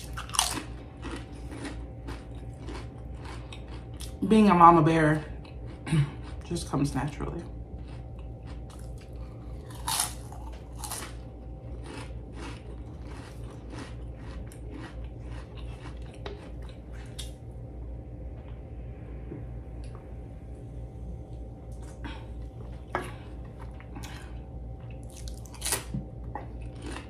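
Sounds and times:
crunching potato chips: 0.0s - 4.3s, 7.8s - 17.4s, 24.9s - 27.0s.

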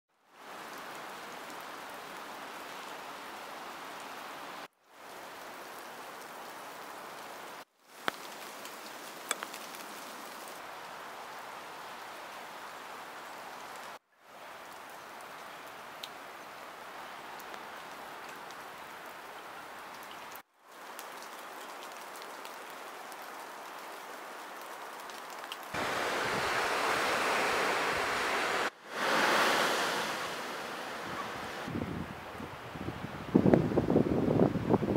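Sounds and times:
rain on forest ground: 0.1s - 34.9s
ocean surf on beach: 25.7s - 34.8s.

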